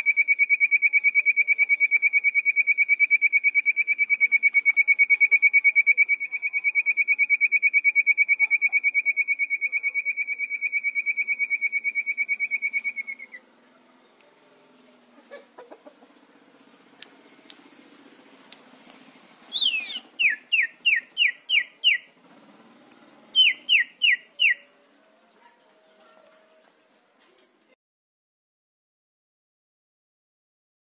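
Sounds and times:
songbird trilling: 19.5s - 22.2s, 23.3s - 24.7s.

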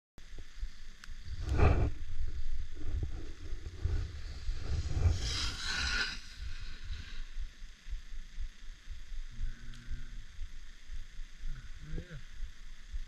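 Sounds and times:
wind buffeting microphone: 1.2s - 7.4s
ski edges scraping snow: 2.8s - 7.3s.

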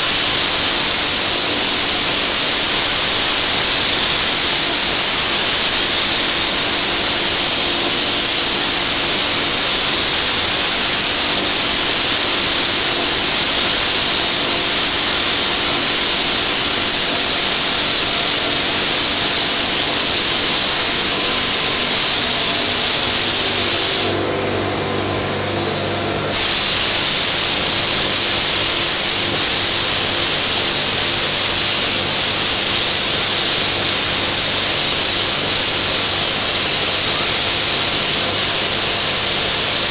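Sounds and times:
paint spray gun hissing: 0.0s - 39.9s
low machine hum: 24.1s - 29.8s.

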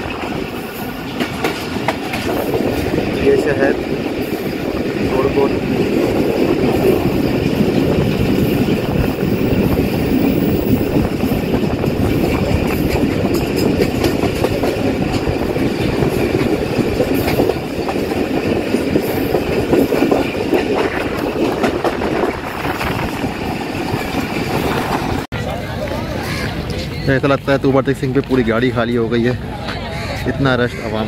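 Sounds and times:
train wheels clacking on track: 0.0s - 26.5s
train coach rumbling: 0.0s - 31.0s.

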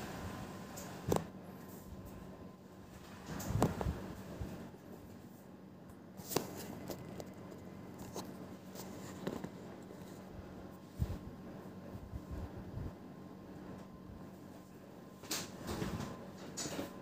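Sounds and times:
air conditioner hum: 0.0s - 17.0s
small clicks and rustles: 6.2s - 10.3s.

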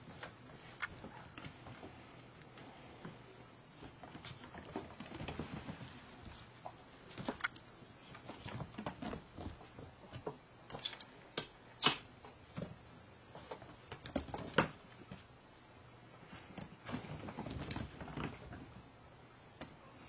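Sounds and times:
kittens scrabbling on wooden floor: 3.8s - 10.4s, 16.4s - 18.8s.

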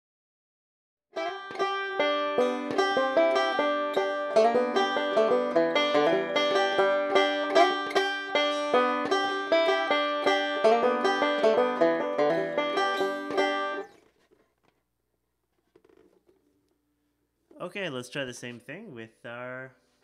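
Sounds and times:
banjo fingerpicking: 1.1s - 14.8s.

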